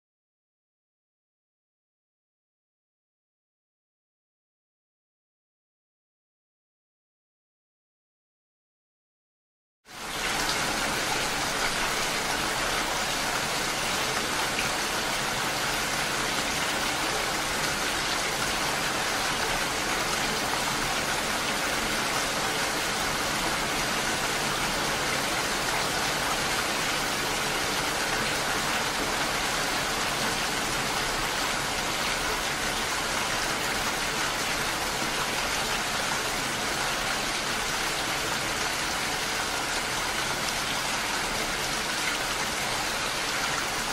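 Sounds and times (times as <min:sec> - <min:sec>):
heavy rain splashing: 0:09.9 - 0:43.9.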